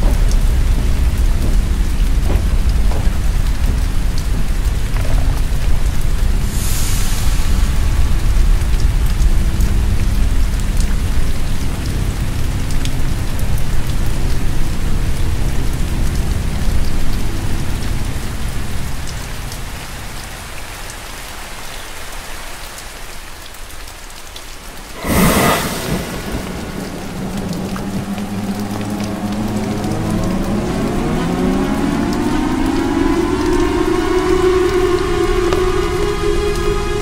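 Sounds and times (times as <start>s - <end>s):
heavy rain: 0.0s - 37.0s
low rumble: 24.8s - 32.7s
loud crash: 24.9s - 28.6s.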